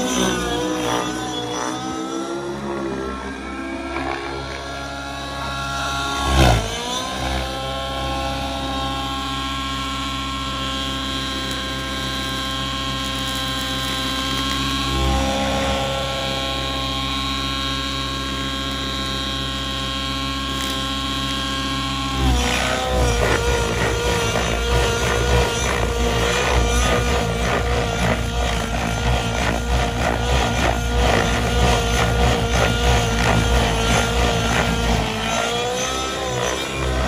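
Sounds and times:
model helicopter engine whine: 0:00.0 - 0:37.0.

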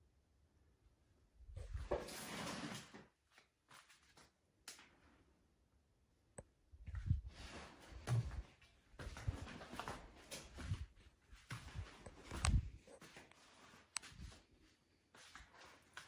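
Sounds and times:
rustling and scuffing: 0:06.9 - 0:16.0.

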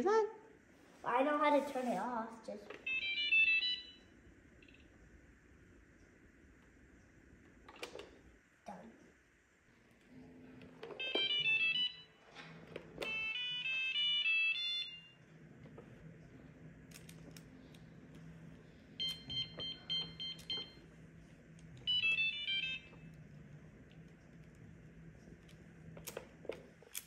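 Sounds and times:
robot mop electronic beep tunes: 0:19.0 - 0:20.8.

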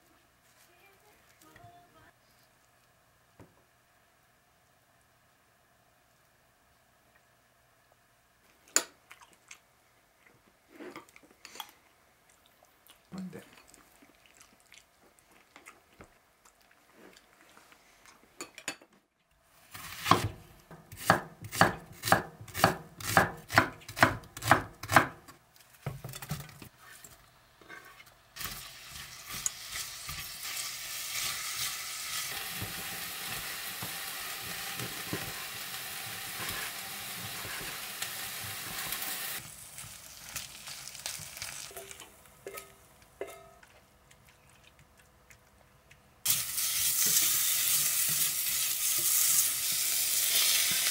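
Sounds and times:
onions sizzling in a pot: 0:19.6 - 0:24.1, 0:26.8 - 0:42.6, 0:46.2 - 0:50.9.

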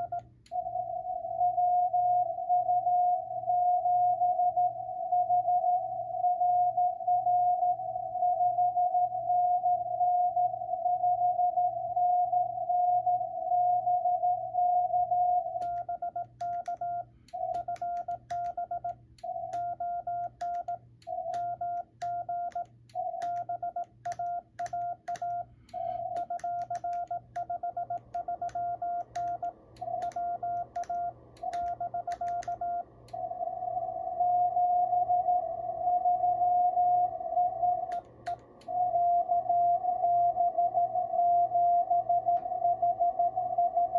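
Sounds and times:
morse code tones: 0:00.0 - 0:00.3, 0:15.4 - 0:32.9
sharp keying clicks: 0:15.6 - 0:33.2.

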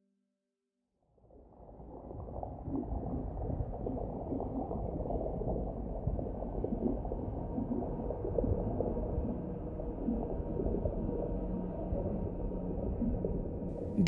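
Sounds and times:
bubbling and gurgling blips: 0:01.1 - 0:13.7
muffled underwater rush: 0:01.2 - 0:13.7.

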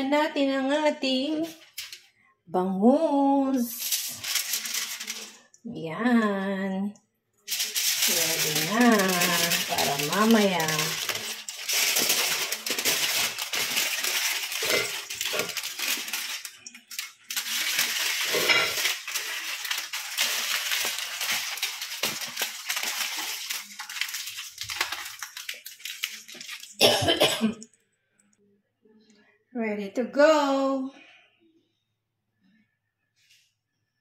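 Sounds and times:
aluminium foil crinkling: 0:01.4 - 0:02.1, 0:03.5 - 0:05.6, 0:07.5 - 0:27.7.

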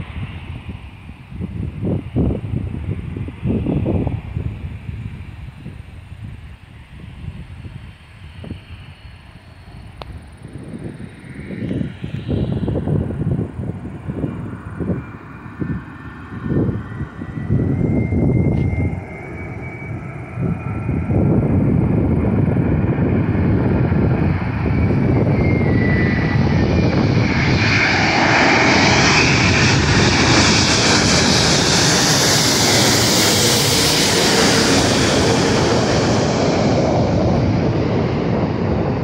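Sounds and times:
jet airliner roar: 0:00.0 - 0:39.0
jet engine whine: 0:00.0 - 0:39.0.

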